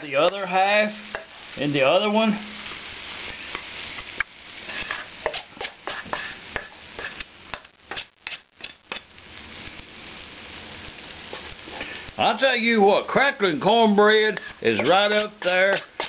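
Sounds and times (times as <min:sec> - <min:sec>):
batter sizzling in pan: 0:00.0 - 0:16.0
spoon scraping metal bowl: 0:04.7 - 0:06.4, 0:14.3 - 0:16.0.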